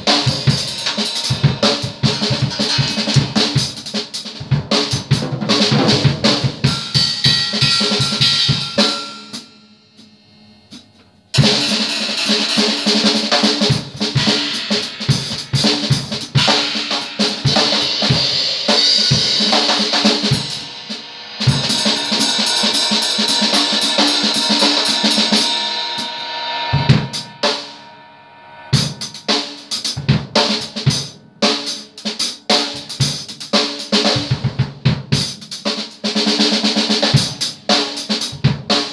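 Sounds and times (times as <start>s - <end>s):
drum kit fills: 0.0s - 27.9s, 28.6s - 38.9s
crash cymbals ringing: 6.6s - 13.3s, 20.3s - 32.4s.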